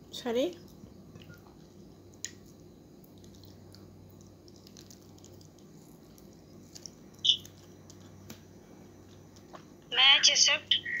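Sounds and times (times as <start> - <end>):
wet chewing of mango: 0.7 - 8.3.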